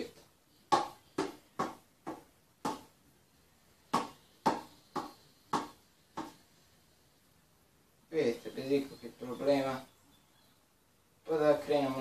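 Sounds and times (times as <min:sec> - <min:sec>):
hand slapping spinning ball: 0:00.7 - 0:03.0, 0:03.9 - 0:06.5.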